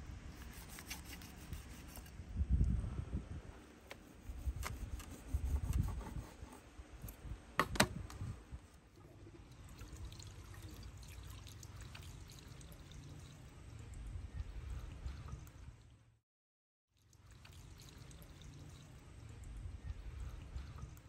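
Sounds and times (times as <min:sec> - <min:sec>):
water pouring from jug: 0:08.9 - 0:14.0, 0:17.0 - 0:19.4.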